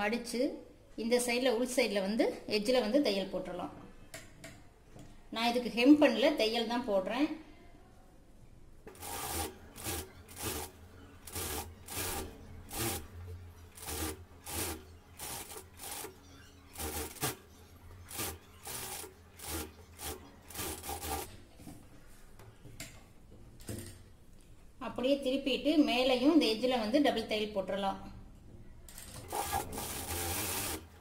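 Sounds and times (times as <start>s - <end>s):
sewing machine running: 9.0s - 21.3s, 29.2s - 31.0s.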